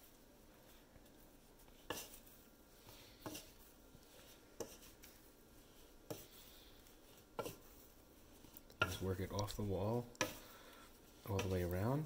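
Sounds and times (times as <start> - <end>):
wooden spatula scraping dough: 0.0 - 12.0.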